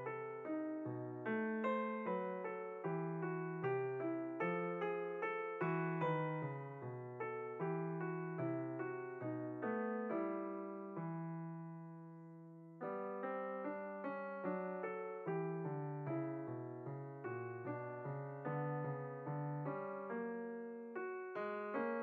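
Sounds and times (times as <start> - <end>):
gentle piano music: 0.0 - 22.0.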